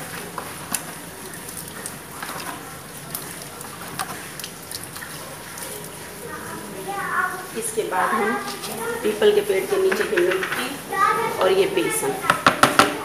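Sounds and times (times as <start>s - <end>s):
hands squelching wet slurry: 0.0s - 11.6s.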